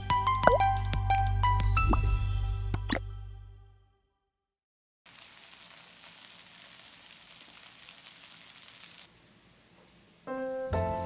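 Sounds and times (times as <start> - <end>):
fish frying in hot oil: 5.1 - 10.2.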